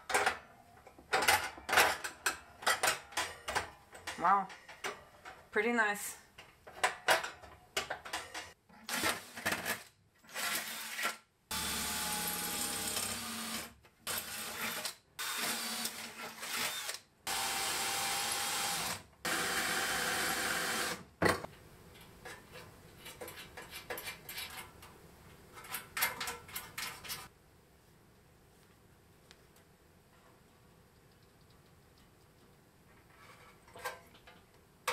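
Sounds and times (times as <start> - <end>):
cordless drill boring into metal: 10.4 - 21.0.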